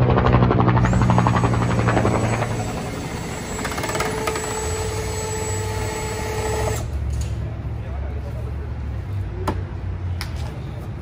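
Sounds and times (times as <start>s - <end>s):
helicopter rotor chopping: 0.0s - 7.0s
steady shop hum: 0.0s - 11.0s.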